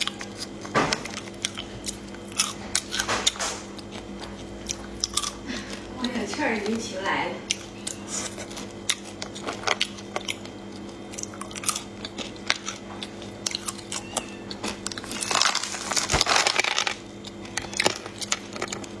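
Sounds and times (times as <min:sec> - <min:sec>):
crunchy chewing: 0:00.0 - 0:19.0
fingers rustling in plastic jar: 0:15.1 - 0:17.0.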